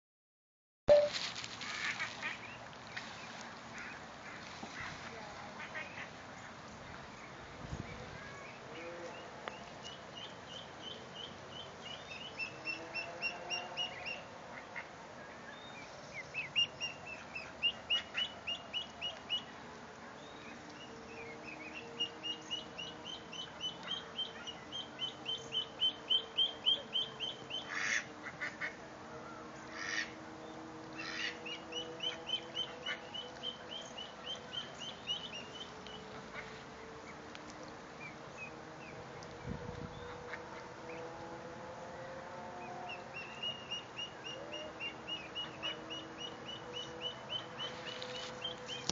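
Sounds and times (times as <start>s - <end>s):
ducklings peeping: 20.4s - 28.8s, 31.0s - 41.0s, 42.6s - 48.9s.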